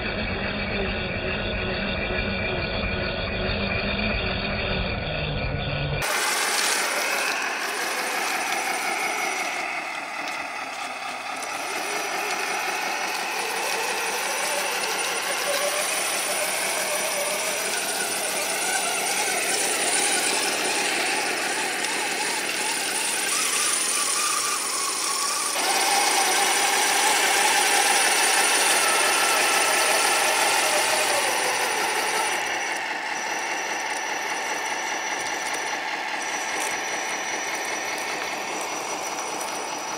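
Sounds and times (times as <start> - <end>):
electric motor geared whine: 0.0 - 39.9
rattle of tracks: 6.0 - 39.9.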